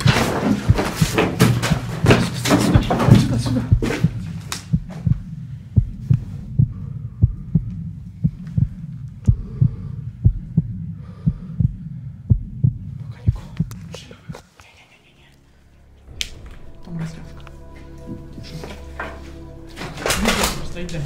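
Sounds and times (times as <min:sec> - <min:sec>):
heartbeat thumps: 0:00.0 - 0:14.4
steady low hum: 0:00.0 - 0:21.0.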